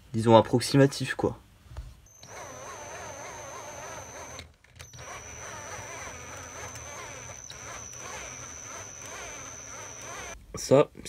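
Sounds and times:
electric drill whining: 2.1 - 10.4.

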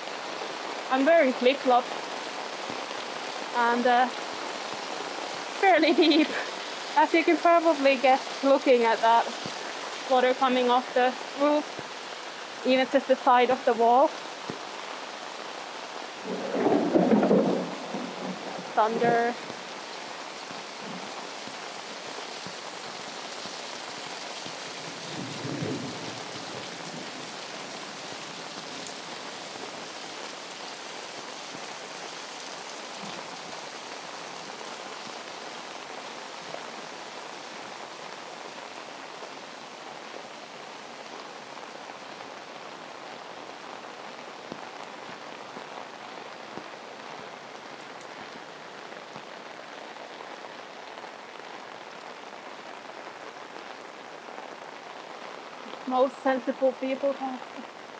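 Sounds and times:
heavy rain: 0.0 - 57.9
water pouring off roofs: 0.0 - 57.9
low rumble of thunder: 16.2 - 19.7, 25.0 - 27.2.

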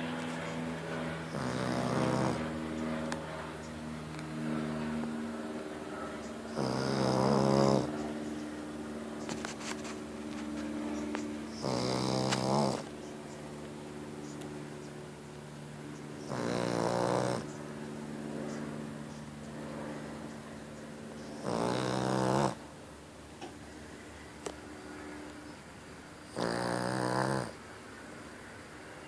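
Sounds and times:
dog snoring: 1.3 - 2.5, 6.5 - 8.0, 11.5 - 12.9, 16.2 - 17.5, 21.4 - 22.6, 26.3 - 27.6.

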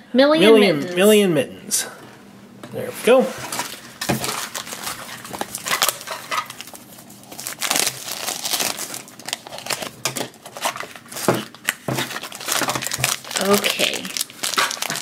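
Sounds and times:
plastic wrapping crinkling: 3.4 - 15.0.

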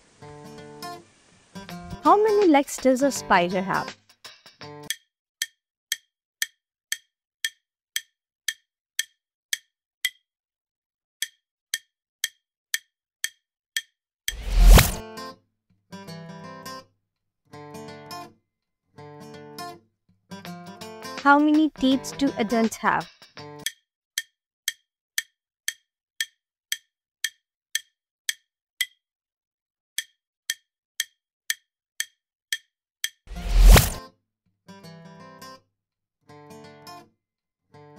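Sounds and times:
wood-block timer clicks: 4.8 - 10.3, 11.2 - 14.8, 23.0 - 29.0, 30.0 - 33.2.

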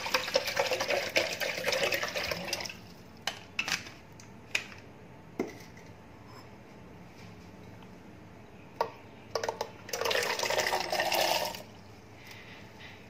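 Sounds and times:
water pouring into plastic jar: 9.9 - 11.7.

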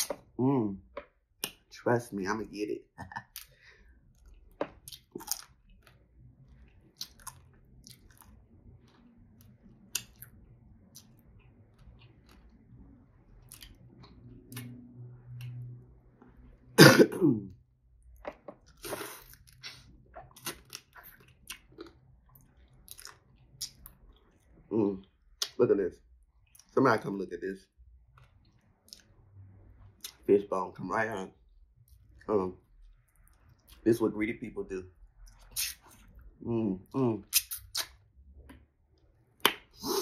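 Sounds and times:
wet chewing with mouth smacks: 3.3 - 12.8, 13.4 - 14.8, 18.6 - 24.6
cough-like throat sound: 16.8 - 17.4.

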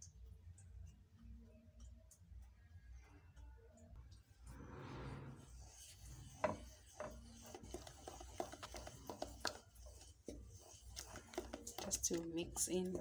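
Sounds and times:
spoon scraping metal bowl: 4.6 - 13.0.

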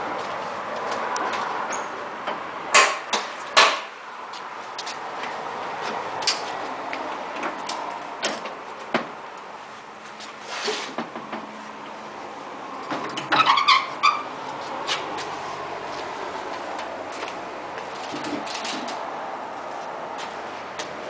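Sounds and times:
tractor panels clicking and knocking: 1.2 - 3.9, 7.3 - 9.2, 12.8 - 13.8, 17.8 - 19.0.

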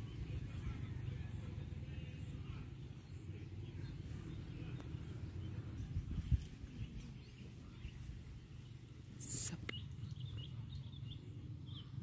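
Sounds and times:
faint bird chirps: 0.0 - 12.0.

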